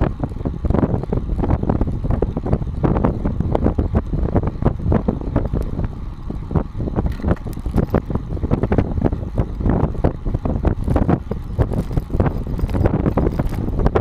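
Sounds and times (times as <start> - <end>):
tyres rumbling on asphalt: 0.0 - 14.0
wind buffeting microphone: 0.0 - 14.0
camera mount rattling: 11.7 - 13.7.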